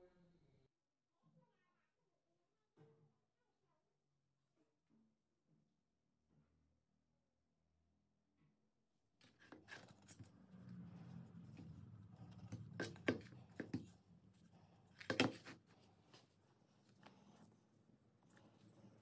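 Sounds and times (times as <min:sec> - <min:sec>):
wooden board knocks and scrapes: 0:12.4 - 0:13.9, 0:15.0 - 0:15.6.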